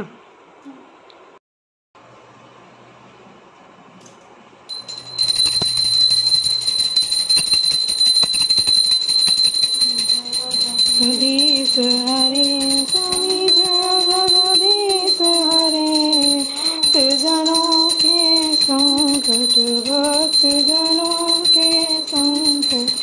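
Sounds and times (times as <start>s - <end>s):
hand bell ringing rapidly: 4.7s - 23.0s
woman singing: 10.4s - 23.0s.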